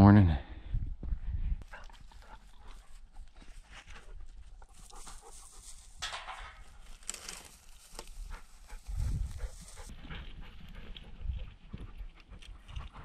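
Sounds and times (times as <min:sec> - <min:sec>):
footsteps in dry grass: 0:01.7 - 0:11.8
small crunches and clicks: 0:06.8 - 0:08.2.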